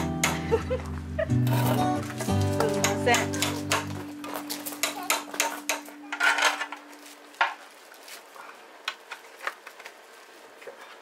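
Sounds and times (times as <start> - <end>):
dishes and utensils clinking: 1.4 - 7.6.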